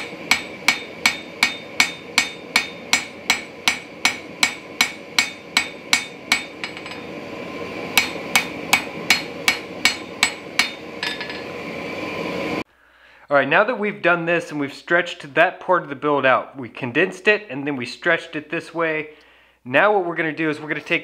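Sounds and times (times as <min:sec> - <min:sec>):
anvil ringing: 0:00.0 - 0:07.1, 0:08.0 - 0:11.6
hammer striking steel on anvil: 0:00.0 - 0:07.2, 0:07.9 - 0:11.6.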